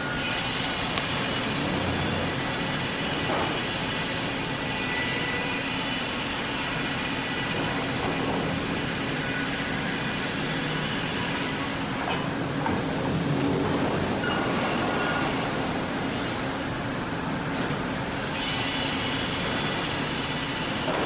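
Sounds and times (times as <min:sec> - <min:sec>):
sawmill saw running: 0:00.0 - 0:12.6, 0:18.0 - 0:21.0.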